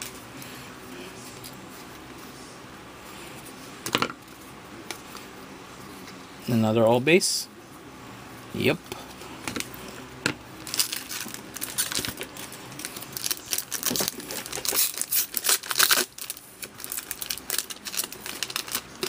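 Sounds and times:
foil wrapper tearing and crinkling: 10.6s - 19.0s.

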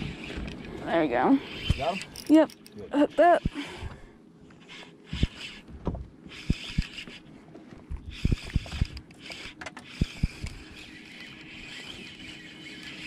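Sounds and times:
short irregular knocks and bumps: 5.2s - 6.1s.

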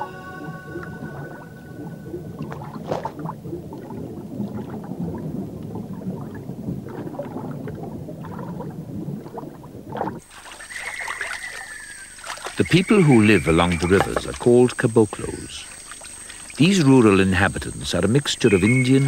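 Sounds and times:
steady high thin tone: 0.0s - 2.7s
canoe paddle splashing: 0.0s - 19.0s
water gurgling underwater: 0.6s - 10.3s.

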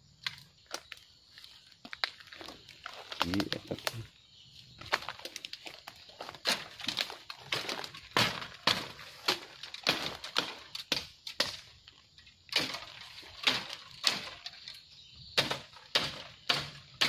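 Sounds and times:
bamboo stems cracking and snapping: 0.2s - 4.1s, 4.7s - 17.0s.

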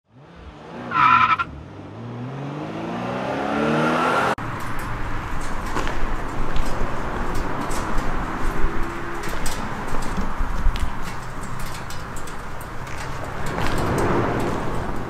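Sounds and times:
car engine revving: 0.1s - 15.0s.

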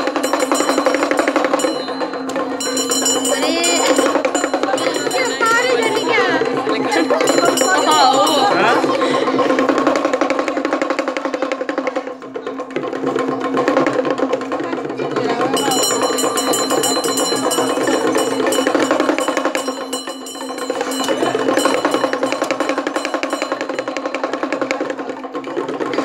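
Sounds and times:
high ringing tones: 0.0s - 9.0s, 15.6s - 24.8s
steady held tone: 0.0s - 9.0s, 15.5s - 24.8s
fast drums and percussion: 0.0s - 26.0s.

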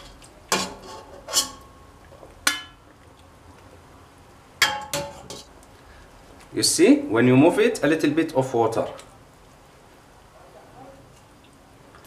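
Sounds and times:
metal ladle knocking on pot: 4.6s - 5.2s.

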